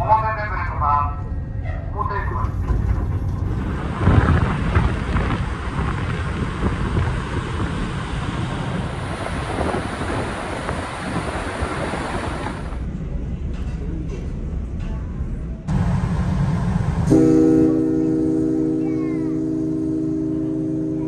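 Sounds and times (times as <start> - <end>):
wind blowing across microphone: 1.2 - 16.2.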